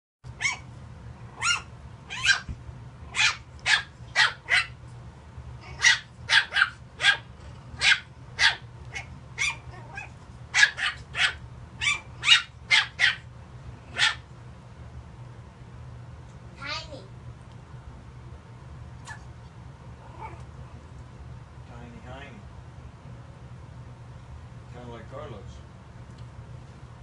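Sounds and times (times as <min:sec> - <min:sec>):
puppy yapping: 0:00.4 - 0:00.7, 0:01.4 - 0:02.5, 0:03.1 - 0:04.8, 0:05.6 - 0:13.3, 0:13.9 - 0:14.2, 0:19.0 - 0:19.3, 0:20.0 - 0:20.5.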